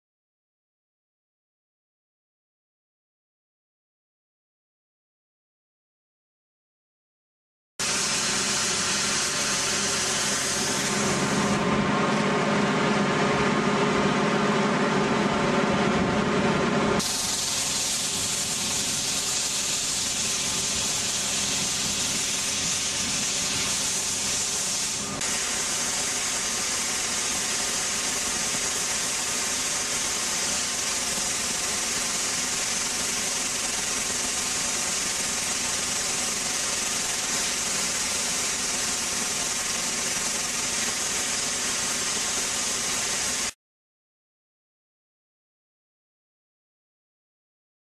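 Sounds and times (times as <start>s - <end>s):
water jet hissing: 7.8s - 11.6s, 17.0s - 43.6s
droning machine: 7.8s - 43.5s.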